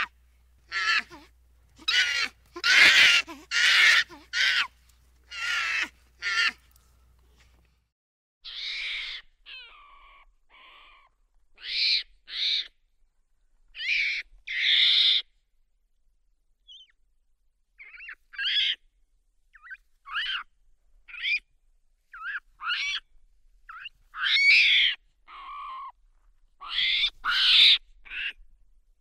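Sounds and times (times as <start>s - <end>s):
monkey hooting cries: 0.0s - 6.6s, 8.4s - 12.7s, 13.8s - 15.2s, 17.8s - 18.8s, 19.6s - 20.5s, 21.1s - 21.4s, 22.1s - 23.1s, 23.7s - 26.0s, 26.6s - 28.4s.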